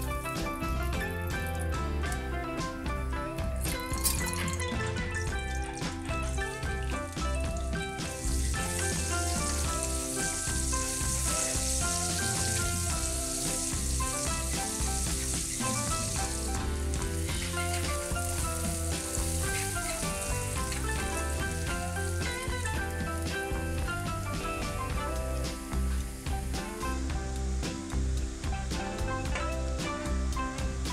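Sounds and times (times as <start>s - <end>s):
instrumental background music: 0.0s - 30.9s
onions sizzling in hot oil: 0.0s - 30.9s
spatula stirring in wok: 8.0s - 23.9s.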